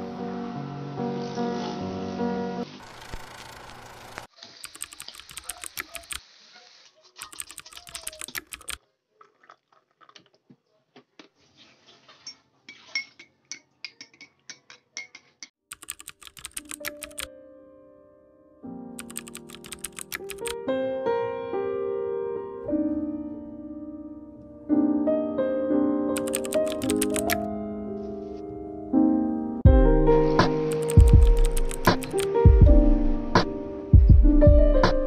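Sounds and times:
music: 0:00.0 - 0:02.8, 0:16.8 - 0:35.0
rapid light clicking and clinking: 0:04.6 - 0:06.2, 0:26.2 - 0:27.4, 0:30.7 - 0:32.3.

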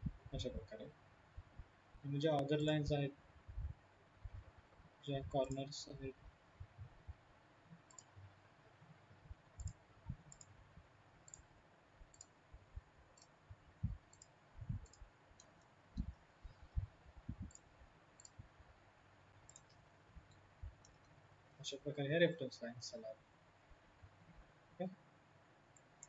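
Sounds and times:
soft low thumps: 0:03.5 - 0:04.5, 0:06.6 - 0:07.2, 0:13.5 - 0:15.0, 0:16.0 - 0:17.6
computer mouse clicks: 0:07.7 - 0:08.2, 0:09.4 - 0:10.6, 0:11.2 - 0:18.5, 0:19.4 - 0:21.2, 0:25.7 - 0:26.0.

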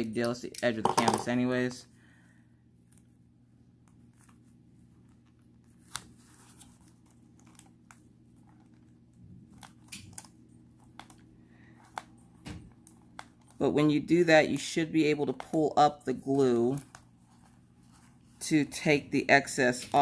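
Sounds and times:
low steady hum: 0:00.0 - 0:20.0
paper crinkling and clicks: 0:03.8 - 0:13.6, 0:16.4 - 0:18.4.

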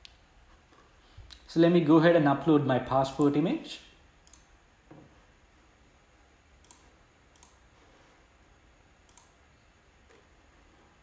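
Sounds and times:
faint computer mouse clicks: 0:06.6 - 0:07.6, 0:09.0 - 0:09.4.

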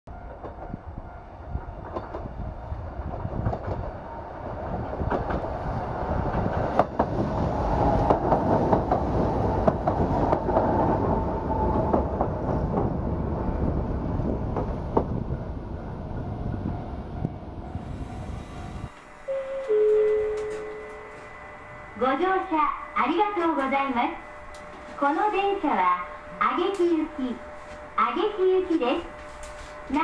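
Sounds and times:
electric train passing: 0:00.1 - 0:30.0
train wheel clicks: 0:01.6 - 0:02.3, 0:03.0 - 0:04.0, 0:04.6 - 0:13.0.

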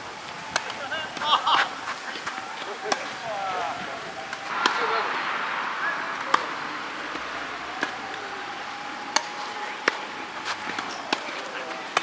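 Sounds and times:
racket striking tennis ball: 0:04.3 - 0:11.4
tennis ball bouncing: 0:04.3 - 0:11.4.

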